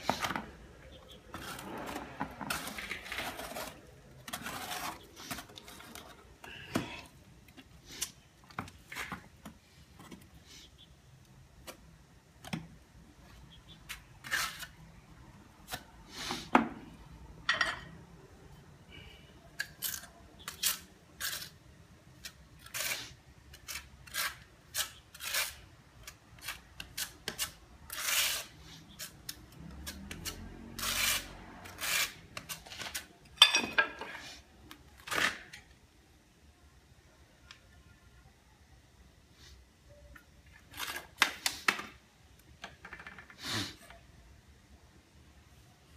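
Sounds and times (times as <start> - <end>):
trowel scraping mortar: 1.1 - 6.2, 13.9 - 14.7, 19.8 - 21.6, 22.2 - 33.1.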